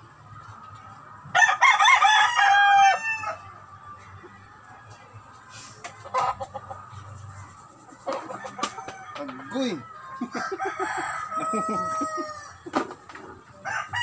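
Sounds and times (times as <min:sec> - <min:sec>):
rooster crowing: 0:01.4 - 0:03.5, 0:08.2 - 0:12.6, 0:13.6 - 0:14.0.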